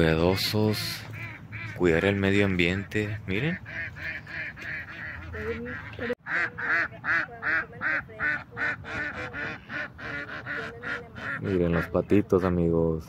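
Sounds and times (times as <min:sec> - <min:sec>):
waterfowl honking: 0:00.0 - 0:12.8.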